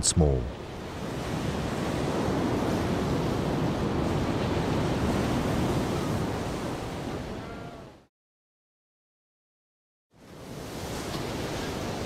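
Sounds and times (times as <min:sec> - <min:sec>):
ocean surf breaking against rocks: 0:00.0 - 0:07.7, 0:10.2 - 0:12.0.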